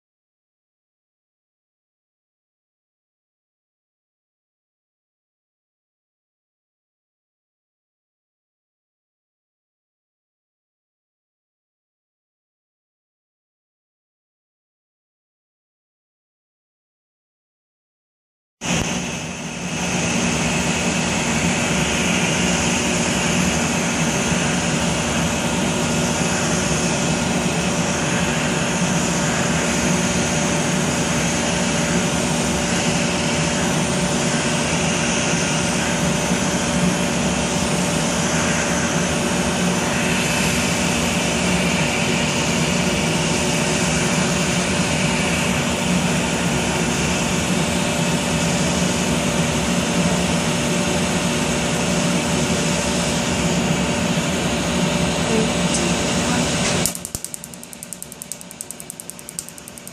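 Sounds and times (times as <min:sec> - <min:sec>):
cooling unit blowing air: 0:18.6 - 0:59.9
even machine hum: 0:18.6 - 0:59.9.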